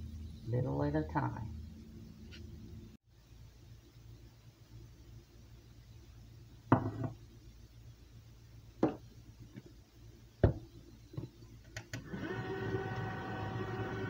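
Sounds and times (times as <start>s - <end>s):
stand mixer motor humming: 12.0s - 14.0s.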